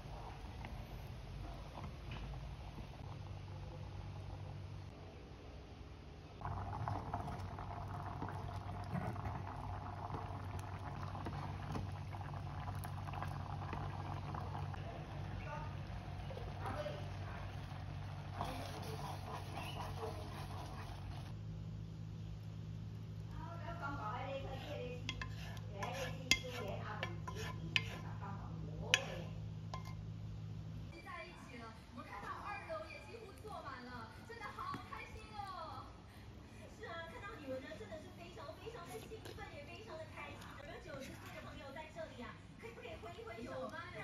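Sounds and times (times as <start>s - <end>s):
risotto bubbling and popping: 0.0s - 5.0s, 6.3s - 30.9s
low hum: 0.0s - 25.8s
wooden spatula stirring: 6.8s - 15.6s, 16.2s - 21.4s, 23.3s - 30.0s, 37.1s - 41.7s
utensil scraping risotto from pot: 18.2s - 21.4s, 24.3s - 28.2s, 28.9s - 30.0s
metal clinking against pot: 28.9s - 30.0s.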